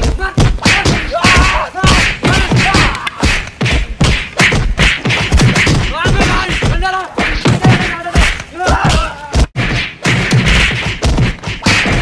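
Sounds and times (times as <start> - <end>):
people crying out and yelling: 0.0 - 3.3, 6.3 - 9.5
punches and stick hits: 0.0 - 12.0.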